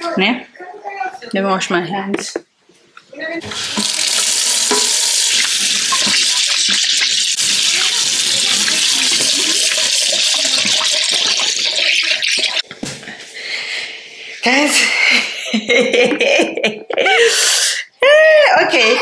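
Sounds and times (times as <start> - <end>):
tap running into metal sink: 3.4 - 7.0.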